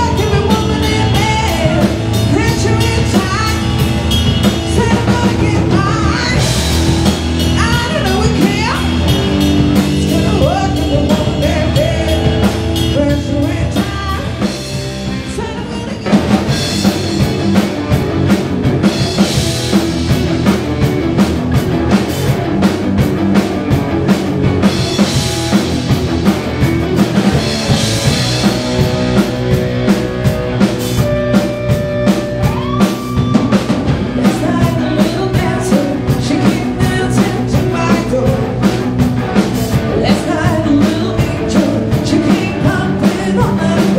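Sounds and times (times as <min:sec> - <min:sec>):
female lead vocals: 0:00.0 - 0:06.8, 0:07.4 - 0:09.1, 0:09.8 - 0:14.6, 0:32.4 - 0:38.6, 0:39.9 - 0:43.9
bass guitar: 0:00.0 - 0:43.9
drum kit: 0:00.0 - 0:43.9
electric guitars: 0:00.0 - 0:43.9.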